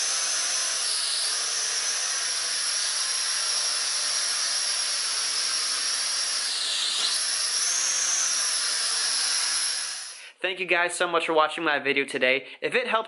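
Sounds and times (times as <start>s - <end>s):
quadcopter propellers whining: 0.0s - 10.2s.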